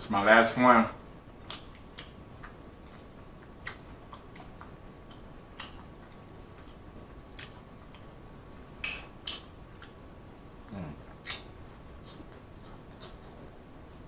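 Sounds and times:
wet chewing mouth smacks: 0:01.4 - 0:08.1, 0:08.8 - 0:10.0, 0:11.1 - 0:13.7.

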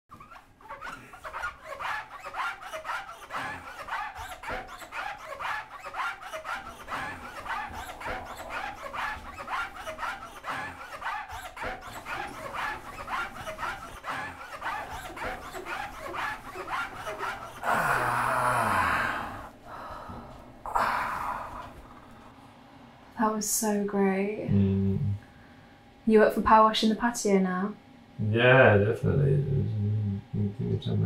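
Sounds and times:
cloths scrubbing: 0:00.1 - 0:18.3
heavy panting breaths: 0:01.0 - 0:22.3.

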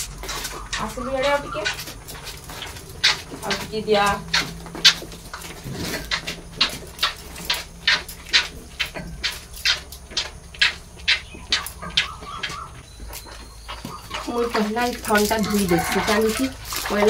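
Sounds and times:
calf suckling with wet slurps: 0:14.1 - 0:17.0.

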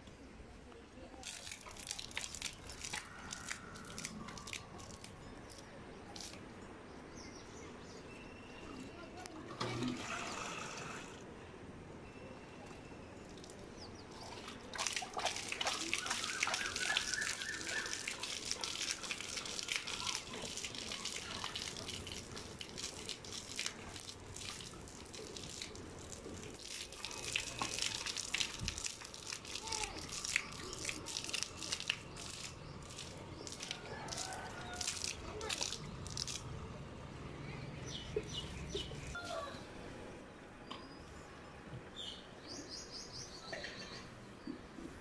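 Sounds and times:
water splashing on dirt road: 0:01.2 - 0:05.6, 0:13.9 - 0:37.2, 0:37.8 - 0:39.2.

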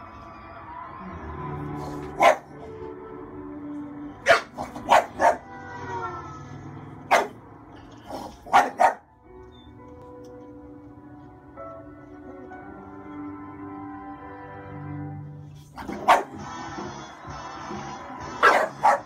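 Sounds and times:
music from a television: 0:00.0 - 0:19.0
dog barking: 0:02.0 - 0:02.6, 0:04.2 - 0:05.5, 0:07.1 - 0:07.4, 0:08.1 - 0:09.1, 0:15.8 - 0:16.4, 0:18.4 - 0:19.0.

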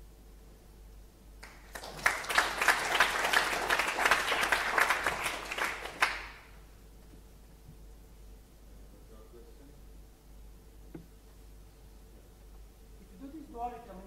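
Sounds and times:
audience applauding: 0:01.4 - 0:06.6.

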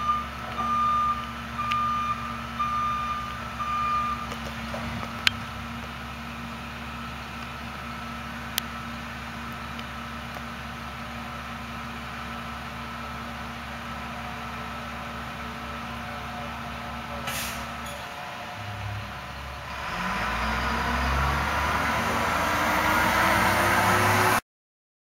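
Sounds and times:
truck diesel engine: 0:00.0 - 0:24.4
air brake hiss: 0:17.2 - 0:18.0.

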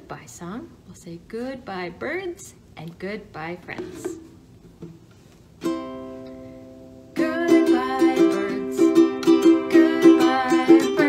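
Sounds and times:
ukulele strumming: 0:03.8 - 0:11.0.

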